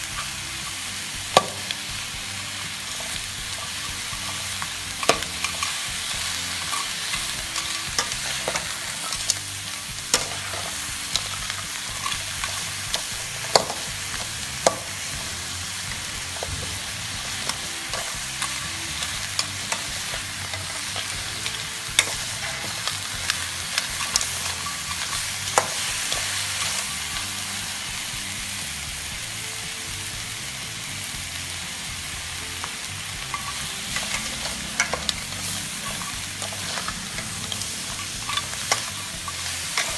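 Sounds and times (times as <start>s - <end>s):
food sizzling in a wok: 0.0s - 39.9s
metal spatula clacking on wok: 10.1s - 14.9s, 33.2s - 39.9s.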